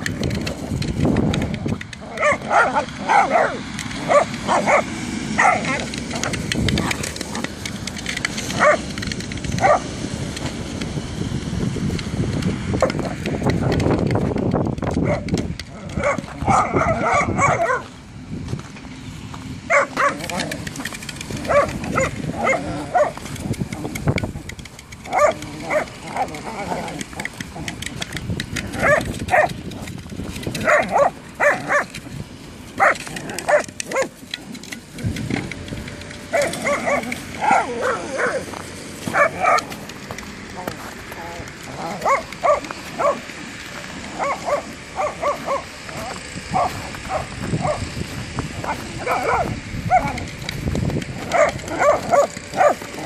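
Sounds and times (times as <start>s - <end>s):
paws crunching on snow: 0.0s - 53.0s
dog barking: 2.1s - 5.9s, 8.5s - 8.9s, 9.6s - 9.9s, 15.0s - 15.3s, 16.0s - 17.9s, 19.7s - 20.4s, 21.4s - 23.2s, 25.1s - 26.4s, 28.8s - 29.6s, 30.6s - 31.9s, 32.8s - 34.1s, 36.3s - 38.4s, 39.1s - 39.7s, 41.8s - 43.3s, 44.2s - 47.9s, 48.6s - 50.2s, 51.3s - 53.0s.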